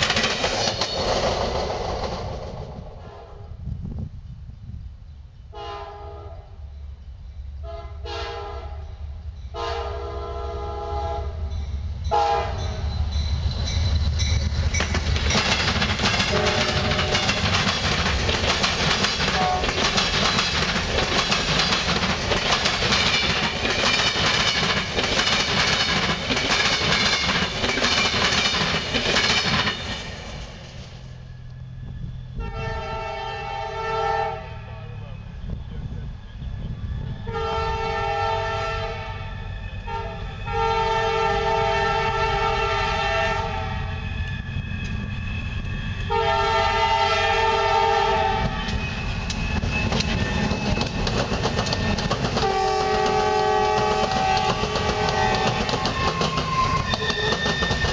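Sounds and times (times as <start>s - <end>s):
train air horn blasts: 3.0s - 3.6s, 5.5s - 6.7s, 7.6s - 11.5s, 12.1s - 12.8s, 16.3s - 17.4s, 19.3s - 19.8s, 32.4s - 35.0s, 37.2s - 44.0s, 46.0s - 48.8s, 52.4s - 57.9s
locomotive deep rumble: 6.5s - 57.9s
wheel-on-rail noise: 11.6s - 33.4s, 39.0s - 57.9s.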